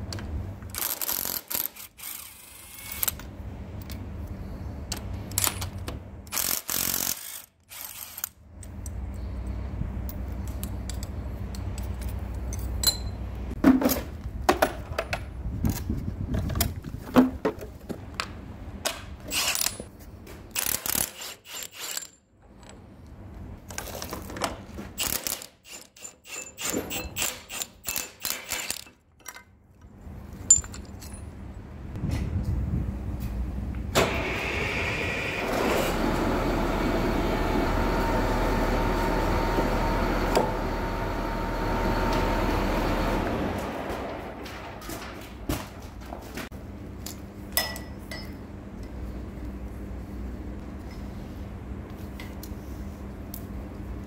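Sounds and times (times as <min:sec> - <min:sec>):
clinks of loose metal parts: 0:10.1 - 0:13.4, 0:30.4 - 0:31.3.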